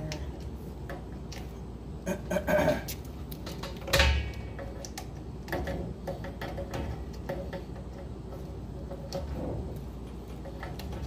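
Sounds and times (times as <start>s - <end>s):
clicks and clinks of wires and fittings: 2.9s - 8.0s.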